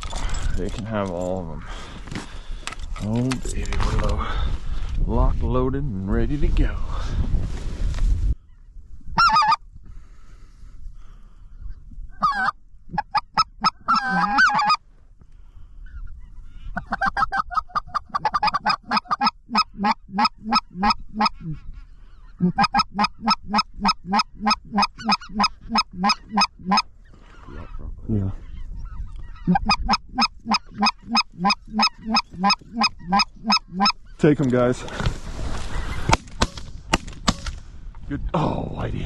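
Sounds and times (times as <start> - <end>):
goose yelping calls: 9.2 - 9.6, 12.2 - 14.8, 16.0 - 21.6, 22.2 - 27.8, 28.4 - 34.1.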